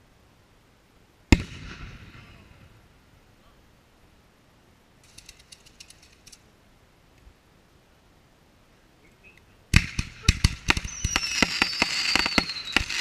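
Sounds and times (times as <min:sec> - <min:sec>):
firework stars crackling: 0:05.0 - 0:06.5, 0:09.7 - 0:13.0.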